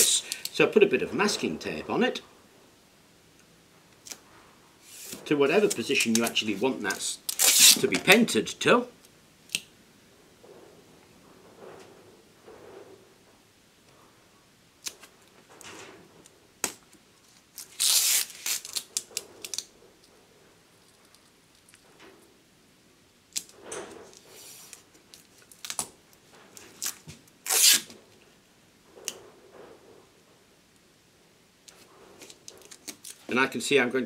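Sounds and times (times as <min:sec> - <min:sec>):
masking tape ripping: 0:04.9 - 0:08.2, 0:17.5 - 0:19.7, 0:24.4 - 0:26.0, 0:26.6 - 0:28.0, 0:31.7 - 0:33.3.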